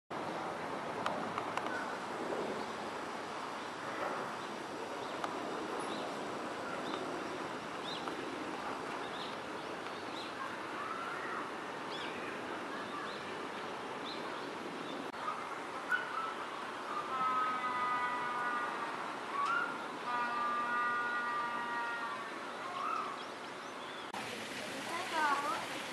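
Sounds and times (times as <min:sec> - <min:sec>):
steady background noise: 0:00.1 - 0:25.9.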